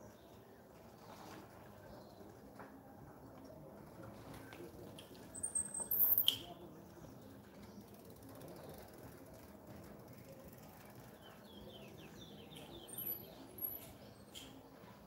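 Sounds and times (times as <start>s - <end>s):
bicycle freewheel ticking: 7.8s - 11.2s.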